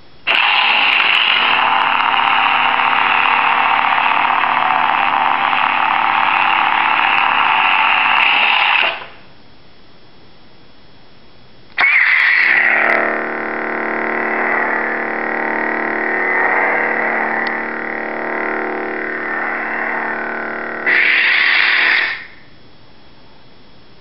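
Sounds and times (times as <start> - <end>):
steady electric hum: 0.0 - 11.8, 12.4 - 24.0
lightsaber ignition: 0.3 - 9.2, 11.8 - 22.4
lightsaber retraction: 11.8 - 22.3.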